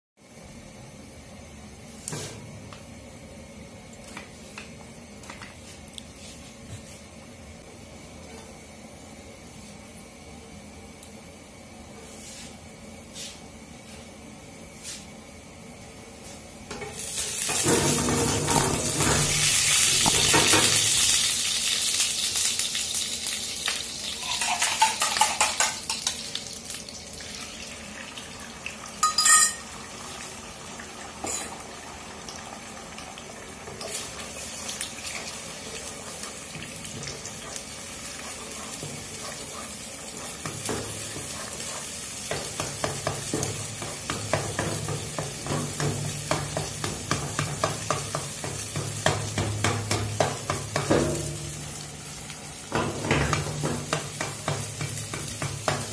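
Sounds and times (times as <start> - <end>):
eggs sizzling in hot oil: 16.7 - 55.9
ringing clink: 29.0 - 29.6.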